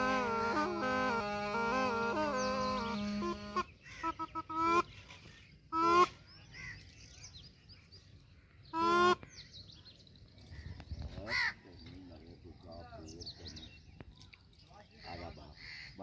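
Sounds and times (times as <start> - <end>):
double-reed pipe blasts: 0.0 - 4.9.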